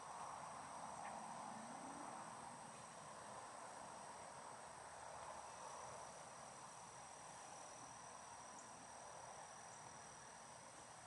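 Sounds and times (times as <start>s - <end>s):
soft hiss: 0.0s - 11.0s.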